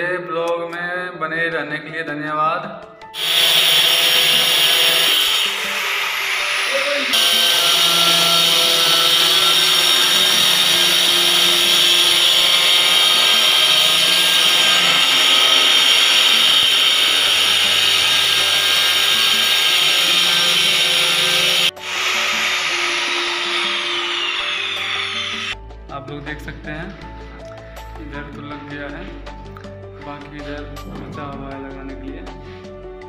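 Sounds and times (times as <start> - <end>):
stone cutter grinding whir: 3.2 - 25.6.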